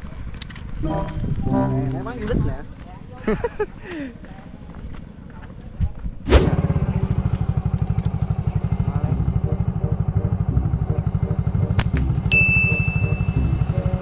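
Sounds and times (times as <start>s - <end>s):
steady high tone: 0.8s - 2.6s, 8.6s - 14.0s
motorcycle engine running: 6.4s - 14.0s.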